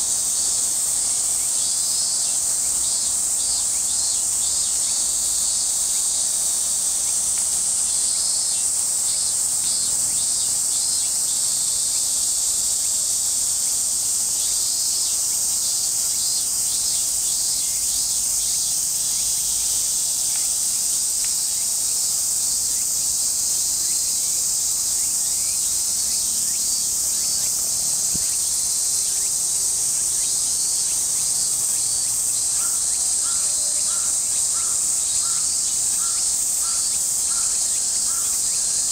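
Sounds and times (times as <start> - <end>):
cicadas singing: 0.0 - 38.9.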